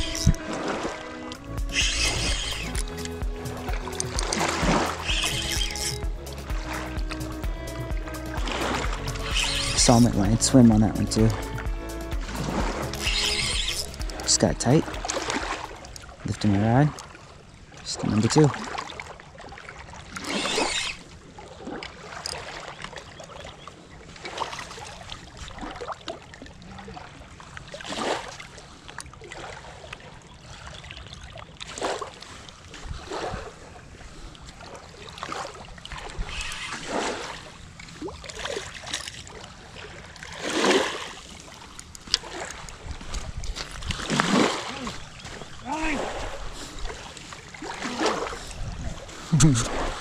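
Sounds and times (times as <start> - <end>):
steady low background: 0.0 - 15.8
lake water splashing on shore: 0.0 - 50.0.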